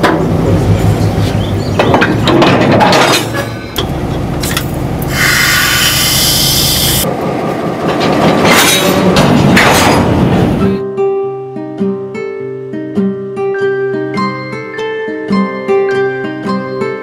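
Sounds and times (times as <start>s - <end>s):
metal clanks: 1.7s - 4.8s, 7.9s - 10.5s
diesel locomotive idling: 3.3s - 8.0s
compressed air hiss: 5.1s - 7.0s.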